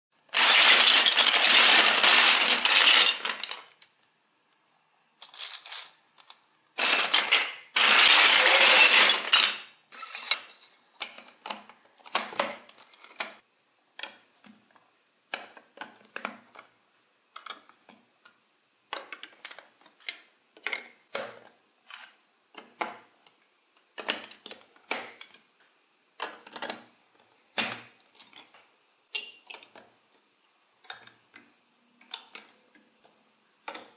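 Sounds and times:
plastic blocks clattering: 0:00.2 - 0:04.0, 0:05.2 - 0:13.4
plastic blocks clicking together: 0:00.3 - 0:04.1, 0:05.2 - 0:09.7, 0:18.9 - 0:21.0, 0:30.8 - 0:33.9.

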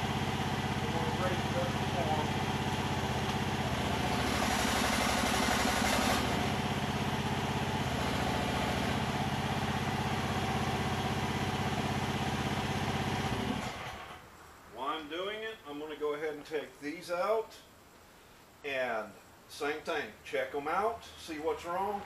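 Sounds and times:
excavator engine running: 0:00.0 - 0:14.2.

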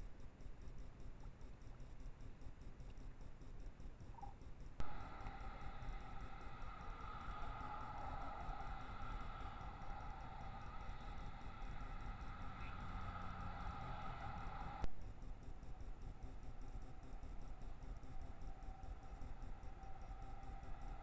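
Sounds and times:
two-tone hum: 0:04.1 - 0:21.0
low rumble: 0:04.8 - 0:21.0.

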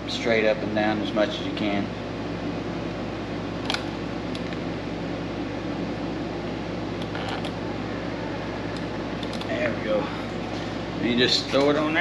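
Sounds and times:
fan humming: 0:00.0 - 0:12.0.

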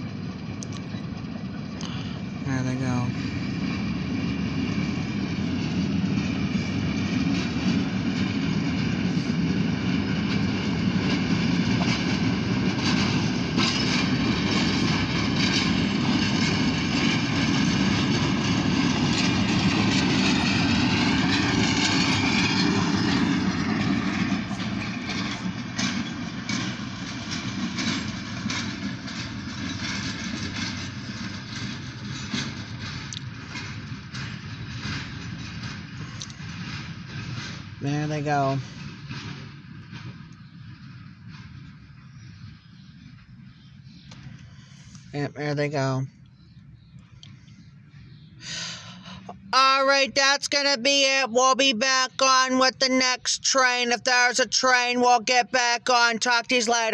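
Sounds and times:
locomotive engine and wheel rumble: 0:00.0 - 0:56.9
train wheels clicking on rail joints: 0:03.4 - 0:45.2.

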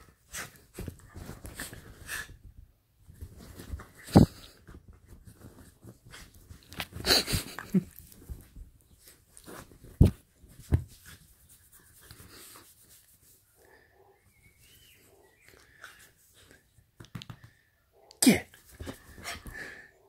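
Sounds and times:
bedsheets rustling: 0:00.0 - 0:13.5.

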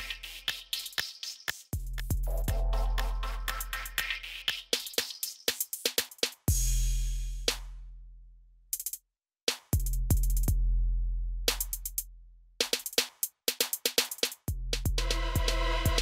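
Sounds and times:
electronic drum machine music: 0:00.0 - 0:06.2, 0:14.8 - 0:16.0
sharp clicking percussion: 0:00.0 - 0:06.6.

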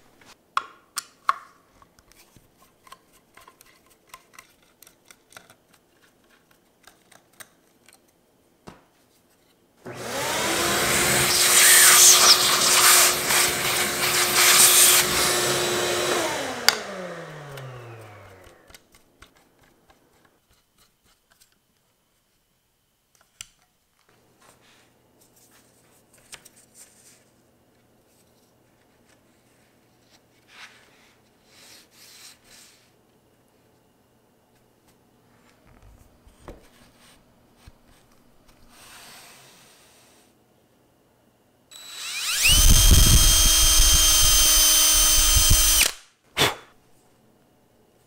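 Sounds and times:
faint clicks and handling noises: 0:00.2 - 0:09.6, 0:17.5 - 0:22.4, 0:23.1 - 0:24.6, 0:25.2 - 0:30.5
router cutting wood: 0:09.9 - 0:18.7, 0:41.7 - 0:46.0
router motor whine spinning down: 0:09.9 - 0:18.7, 0:41.7 - 0:46.0.

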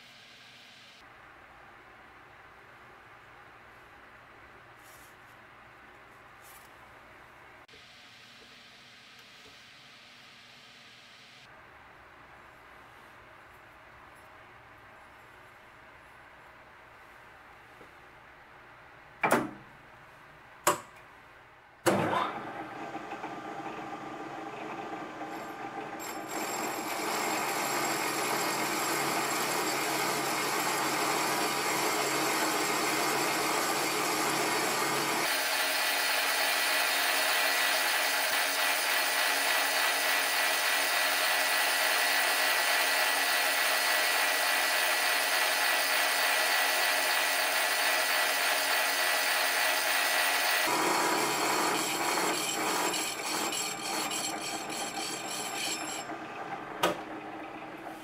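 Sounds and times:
lathe cutting metal: 0:22.5 - 0:57.6.

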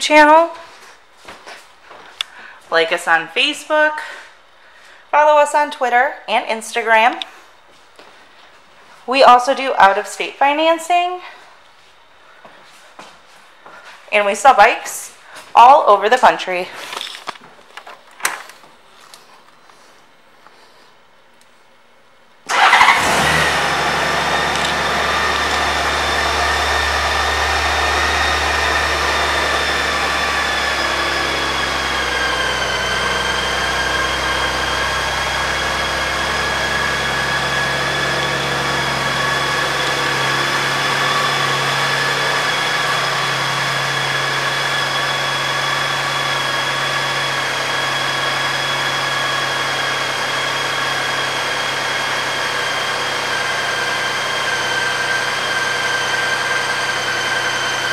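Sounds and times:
motorcycle engine idling: 0:22.5 - 0:45.0.

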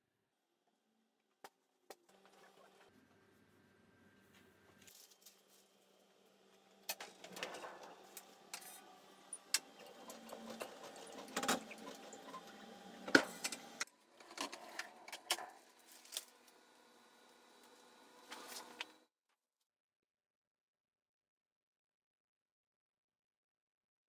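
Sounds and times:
printing press running: 0:06.4 - 0:19.0.

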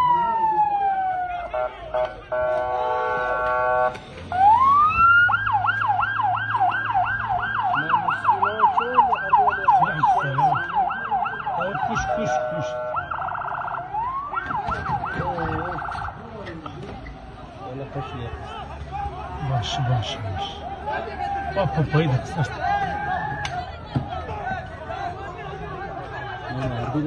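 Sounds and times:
electronic siren: 0:03.6 - 0:16.2.

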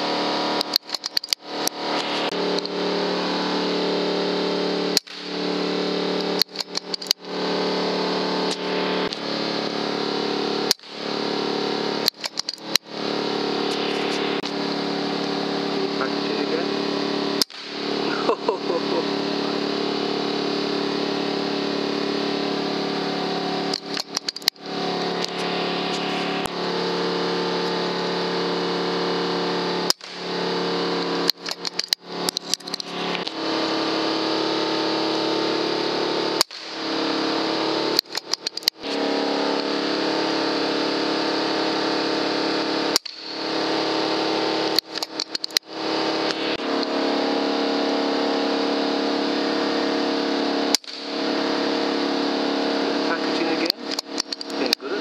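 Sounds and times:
mechanical hum: 0:00.0 - 0:55.0
sharp clicks: 0:00.6 - 0:02.8, 0:05.0 - 0:05.3, 0:06.2 - 0:07.3, 0:10.7 - 0:11.0, 0:12.0 - 0:12.9, 0:17.4 - 0:17.8, 0:23.7 - 0:24.6, 0:29.9 - 0:30.3, 0:31.3 - 0:33.4, 0:38.0 - 0:38.9, 0:42.9 - 0:43.4, 0:44.7 - 0:46.9, 0:50.7 - 0:51.1, 0:53.4 - 0:54.9.

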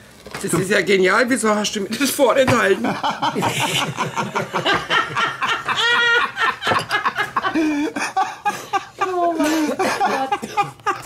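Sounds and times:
group of people laughing: 0:02.8 - 0:11.0
high-pitched laugh: 0:03.2 - 0:11.0.

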